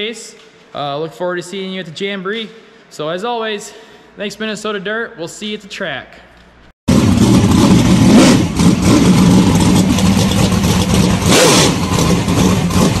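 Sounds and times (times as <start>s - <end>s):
race car engine revving: 6.9s - 13.0s.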